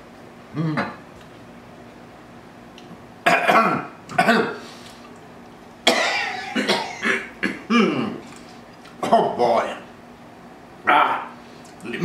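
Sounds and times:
man coughing hard: 3.3s - 4.6s, 5.9s - 8.2s.

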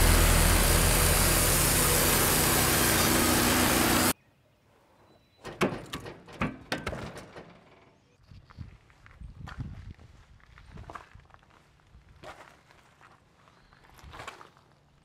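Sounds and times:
sawmill engine running: 0.0s - 4.2s.

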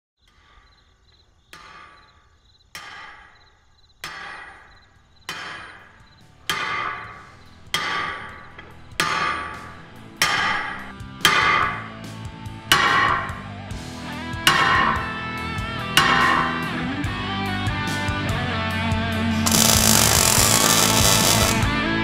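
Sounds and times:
hammer striking metal: 2.8s - 3.4s, 4.0s - 11.9s, 12.7s - 13.4s, 14.5s - 15.0s, 16.0s - 16.6s, 19.5s - 21.6s.

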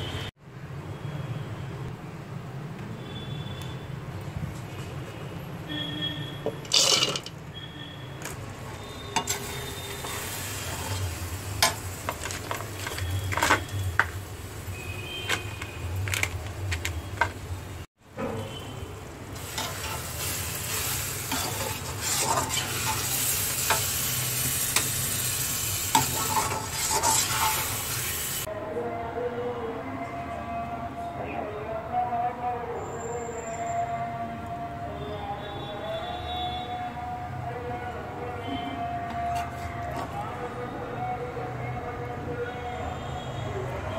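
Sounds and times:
kitchenware clinking: 6.5s - 7.4s, 21.3s - 23.9s, 26.0s - 27.9s
metal spoon scraping iron pan: 6.5s - 7.4s, 8.8s - 13.7s, 19.4s - 25.1s, 25.9s - 28.2s
food sizzling as it fries: 6.6s - 7.4s, 8.2s - 17.9s, 18.6s - 28.5s.

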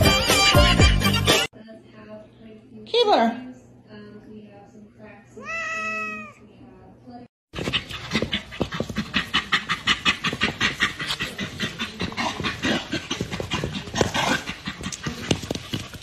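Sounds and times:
dog panting: 7.6s - 16.0s.

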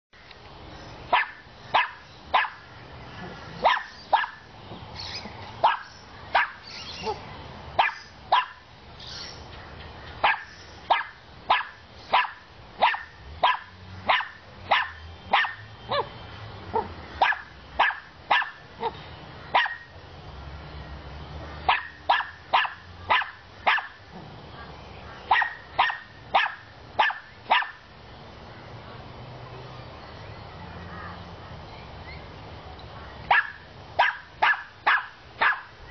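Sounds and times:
dog barking: 1.1s - 2.6s, 3.6s - 4.5s, 5.6s - 7.2s, 7.8s - 8.6s, 10.2s - 16.1s, 16.7s - 19.9s, 21.7s - 24.0s, 25.3s - 27.8s, 33.3s - 35.8s.

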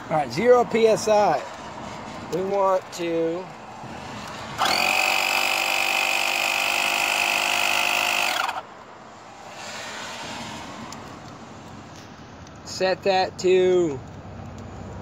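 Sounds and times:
electric compressor whining: 4.5s - 8.7s.

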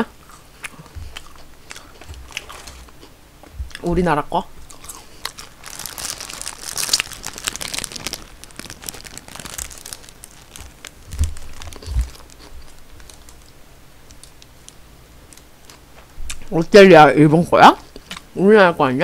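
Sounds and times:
dull low thumps: 3.5s - 4.7s, 5.6s - 12.5s
paper wrapper crinkling: 4.6s - 15.8s.

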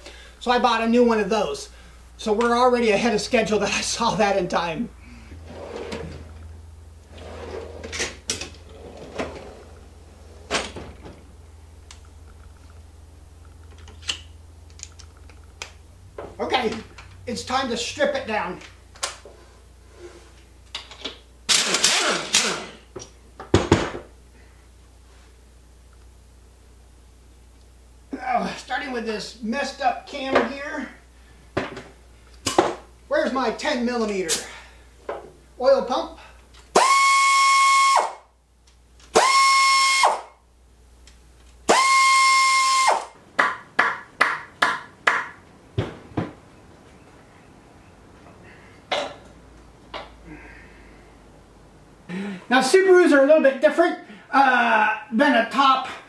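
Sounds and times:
power driver whining: 36.7s - 38.2s, 39.0s - 40.2s, 41.7s - 43.2s.

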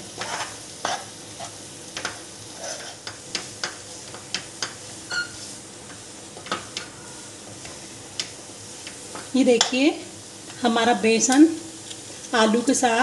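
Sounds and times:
food sizzling: 0.0s - 13.0s
spoon tapping and scraping pan: 0.2s - 5.3s.

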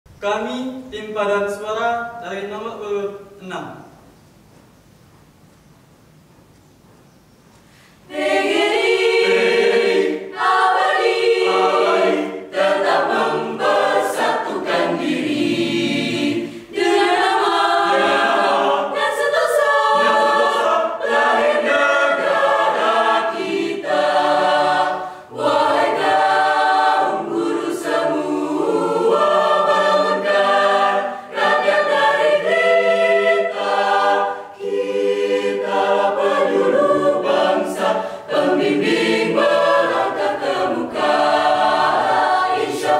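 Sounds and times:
mixed choir singing a cappella: 8.0s - 42.9s.

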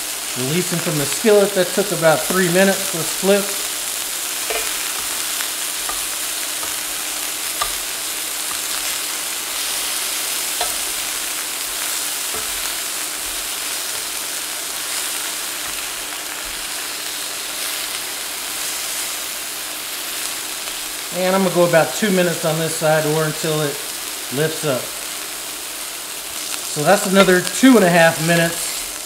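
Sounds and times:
meat sizzling in oil: 0.0s - 29.0s
metal tongs clicking on pan: 4.4s - 5.0s, 7.5s - 8.6s, 10.5s - 11.2s, 12.4s - 12.8s.

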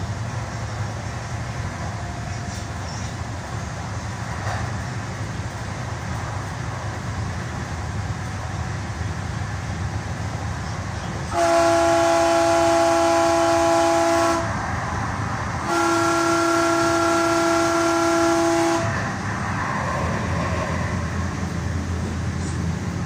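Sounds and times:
train rumbling on track: 0.0s - 23.0s
train horn blasts: 11.3s - 14.7s, 15.6s - 19.1s.

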